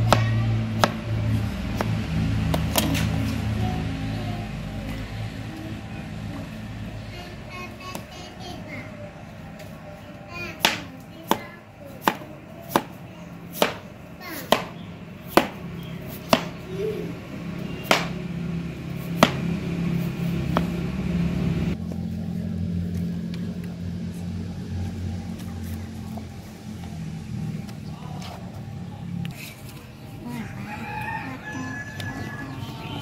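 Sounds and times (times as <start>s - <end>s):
sharp knocks: 14.5s - 15.6s, 17.8s - 18.2s.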